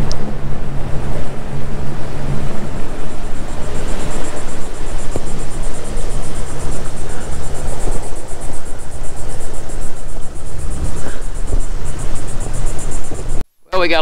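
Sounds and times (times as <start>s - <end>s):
boat motor running: 0.0s - 13.4s
rush of water noise: 0.0s - 14.0s.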